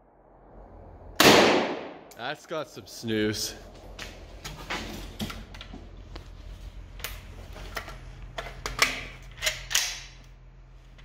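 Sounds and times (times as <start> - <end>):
rifle shots: 1.2 - 2.1.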